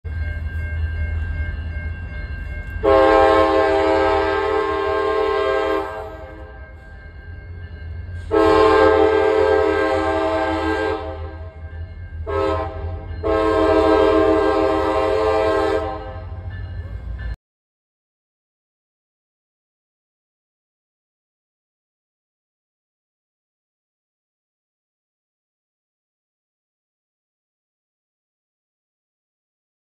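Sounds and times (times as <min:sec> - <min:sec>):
low train rumble: 0:00.0 - 0:17.4
locomotive air horn blasts: 0:02.8 - 0:06.6, 0:08.2 - 0:11.6, 0:12.2 - 0:16.5.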